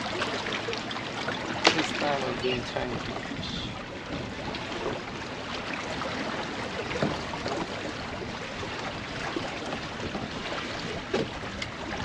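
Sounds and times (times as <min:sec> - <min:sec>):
water lapping against hull: 0:00.0 - 0:12.0.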